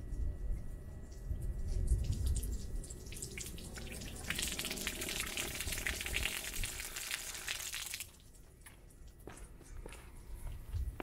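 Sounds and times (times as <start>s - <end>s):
water gushing onto pavement: 2.0s - 8.3s.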